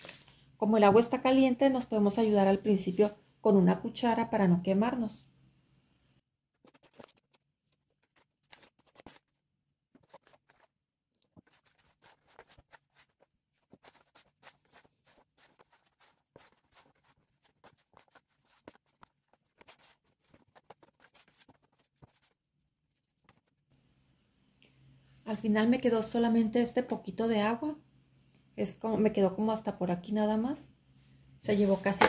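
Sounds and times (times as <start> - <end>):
hand kneading dough in bowl: 6.7 - 23.6.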